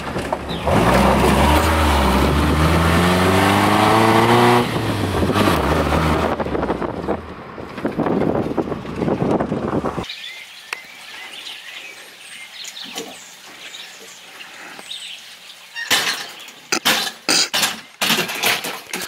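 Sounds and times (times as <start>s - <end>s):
birds chirping: 0.4s - 0.9s, 10.0s - 18.1s.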